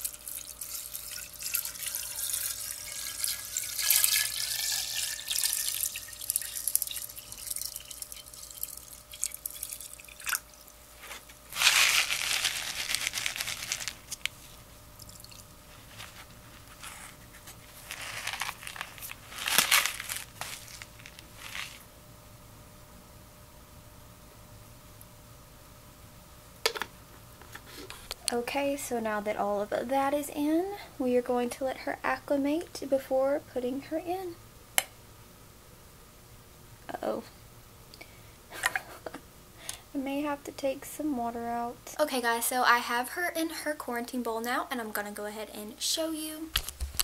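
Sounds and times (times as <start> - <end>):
water pouring and splashing: 0.0 - 10.4.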